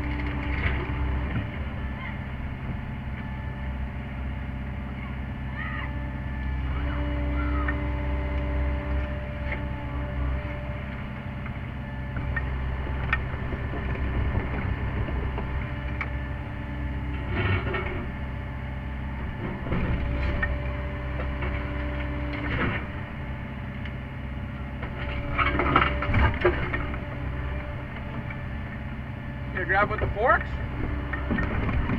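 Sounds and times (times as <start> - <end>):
excavator diesel engine running: 0.0 - 31.9.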